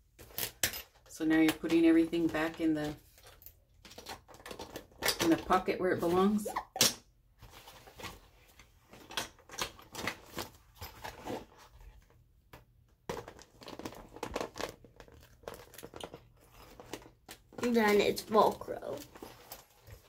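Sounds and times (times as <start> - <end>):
toy accessories rustling in backpack: 13.2 - 20.0.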